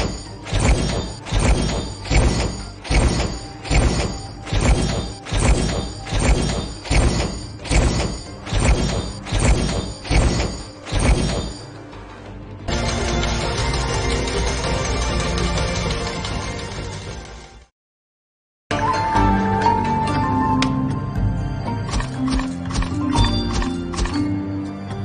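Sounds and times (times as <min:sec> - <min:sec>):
punchy slot game hits: 0:00.0 - 0:11.8
game music: 0:00.0 - 0:17.7, 0:18.7 - 0:25.0.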